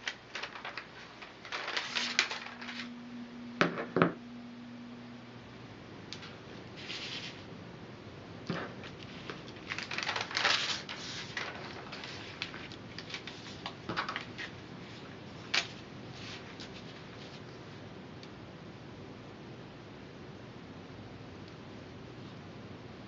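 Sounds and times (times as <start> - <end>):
straw sheet crackling and rustling: 0.0 - 2.9, 9.1 - 14.5.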